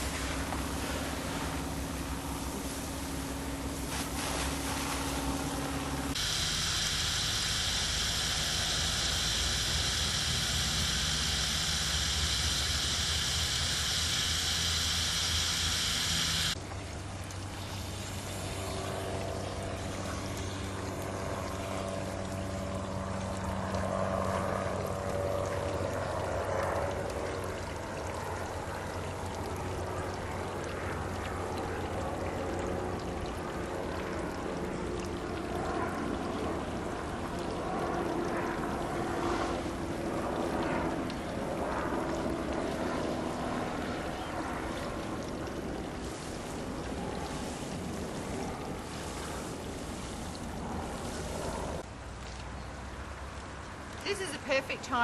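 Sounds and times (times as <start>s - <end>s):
hose spray hissing on gravel: 0.0s - 1.6s, 2.4s - 16.6s, 46.0s - 51.8s
low steady hum: 0.0s - 55.0s
water trickling from drain pipe: 6.1s - 55.0s.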